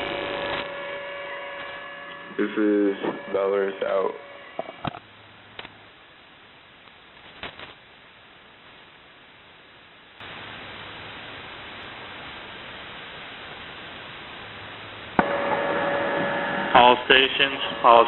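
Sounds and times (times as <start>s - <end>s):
steady radio tones: 0.0s - 5.0s, 12.7s - 18.0s
radio static hiss: 0.0s - 18.0s.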